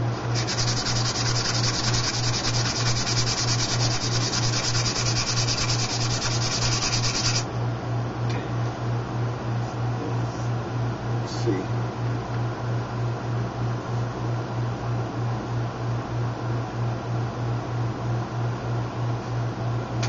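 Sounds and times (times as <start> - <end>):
sandpaper scratching plastic: 0.3 - 7.4.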